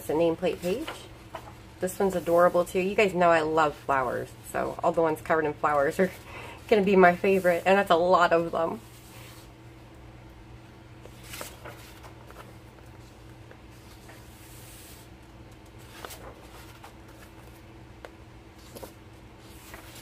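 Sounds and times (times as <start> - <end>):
steady low hum: 0.0 - 20.0
book pages turning: 11.0 - 20.0.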